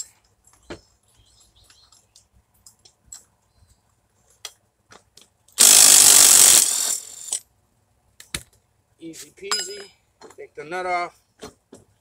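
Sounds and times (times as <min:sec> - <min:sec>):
cordless impact wrench running: 0:05.6 - 0:07.4.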